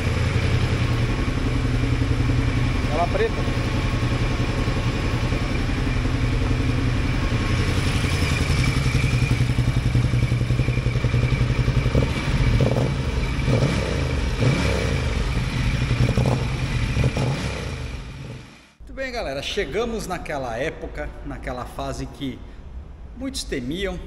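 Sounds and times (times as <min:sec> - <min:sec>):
motorcycle engine idling: 0:00.0 - 0:18.8.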